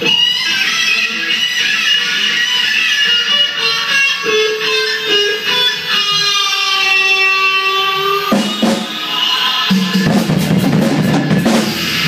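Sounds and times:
electric guitar chord ringing: 0.0s - 10.4s
drum and cymbal hits: 8.2s - 12.0s.

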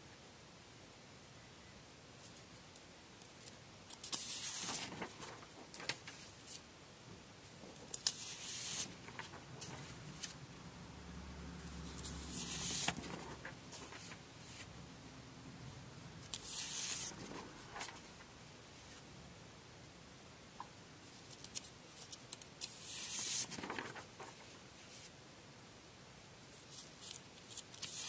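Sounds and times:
paper sheets rustling: 3.2s - 6.6s, 7.6s - 10.4s, 11.8s - 14.7s, 16.2s - 19.0s, 21.2s - 25.1s, 26.6s - 28.0s.

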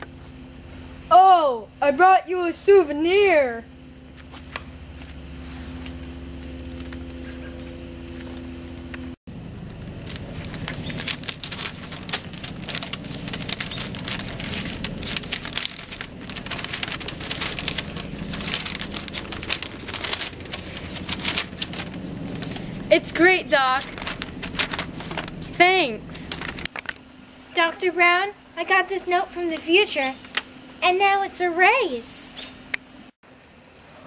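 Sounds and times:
low hum: 2.8s - 27.5s
paper rustling and crackling: 4.1s - 8.8s, 9.7s - 27.1s, 29.6s - 30.5s.

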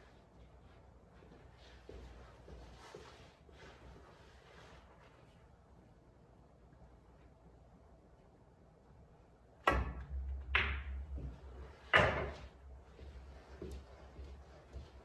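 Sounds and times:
pool balls clacking: 9.7s - 12.6s.

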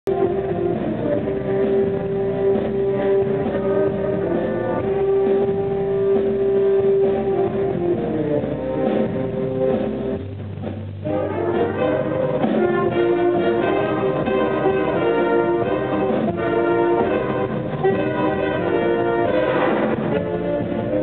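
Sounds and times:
jazz band playing: 0.1s - 21.0s
baritone saxophone solo: 11.0s - 21.0s.

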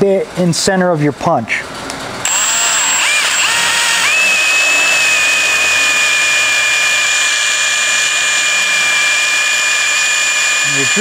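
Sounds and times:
hand drill whining: 2.2s - 11.0s.

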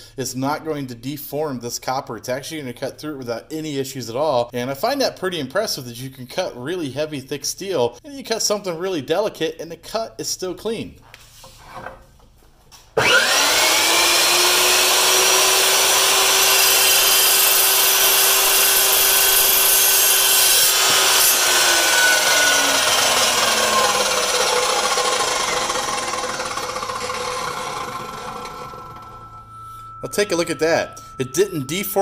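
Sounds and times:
chop saw motor whine: 13.0s - 30.1s
saw blade cutting copper tubing: 13.0s - 32.0s.

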